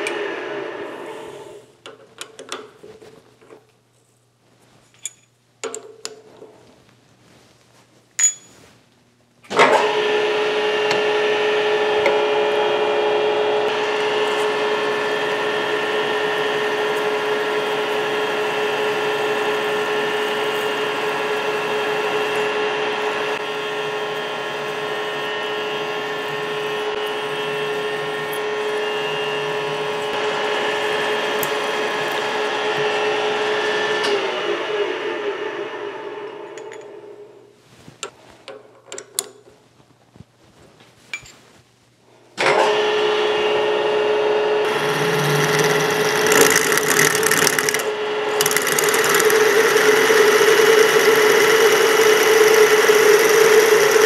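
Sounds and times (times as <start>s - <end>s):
milling machine spindle whining: 10.5s - 36.3s, 44.6s - 54.0s.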